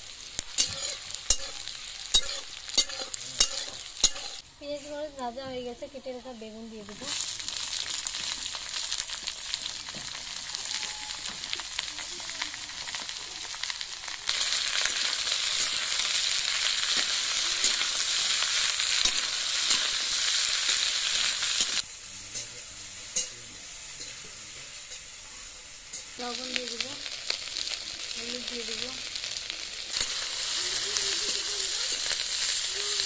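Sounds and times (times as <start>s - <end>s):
vegetables sizzling in hot oil: 0.0s - 33.0s
spatula stirring: 0.4s - 4.4s.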